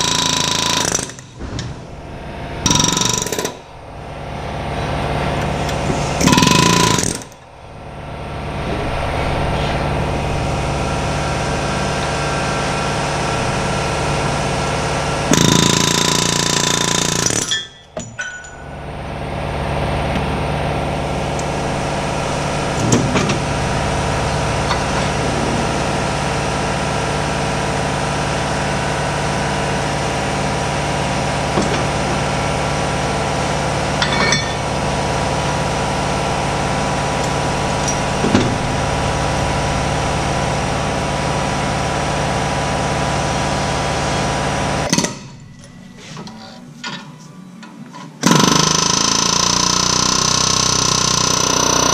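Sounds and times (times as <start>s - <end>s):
pneumatic air hammer bursts: 0.0s - 1.7s, 2.6s - 3.6s, 5.8s - 7.4s, 15.3s - 18.3s, 48.2s - 51.9s
steady mechanical hum: 0.0s - 51.9s.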